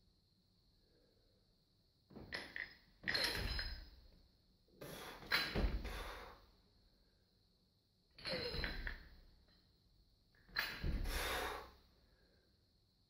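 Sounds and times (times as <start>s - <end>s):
heavy barbell thud: 5.3s - 6.2s, 10.6s - 11.6s.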